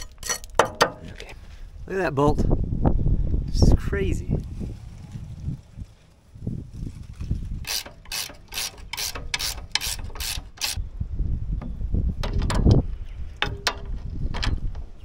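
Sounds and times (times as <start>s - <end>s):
hand ratchet clicking: 7.6s - 10.8s.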